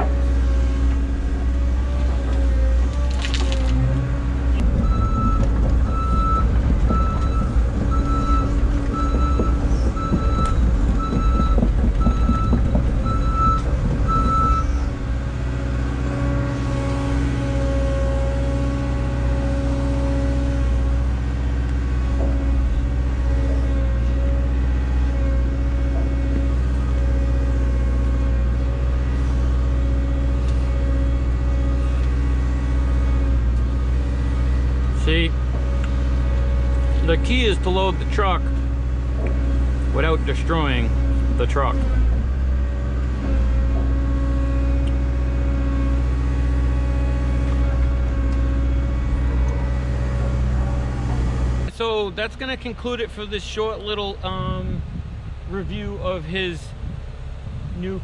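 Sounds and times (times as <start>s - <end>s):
heavy diesel engine under load: 0.0s - 58.0s
backup alarm beeping: 4.8s - 14.7s.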